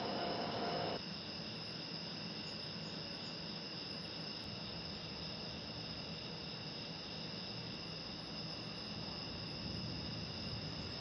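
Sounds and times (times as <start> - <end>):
rushing noise with hum: 0.0 - 1.0
crickets chirring: 0.0 - 11.0.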